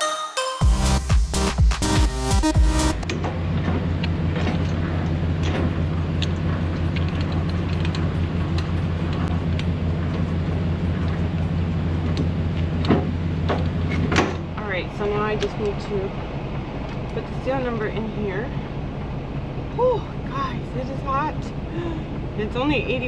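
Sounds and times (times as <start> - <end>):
electronic background music: 0.0 - 3.1
diesel engine idling: 0.6 - 23.0.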